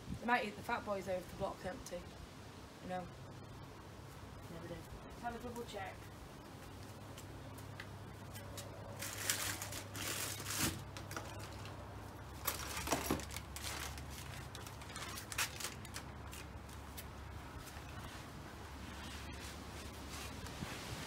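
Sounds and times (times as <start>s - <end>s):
plastic packets rustling: 8.8s - 17.0s.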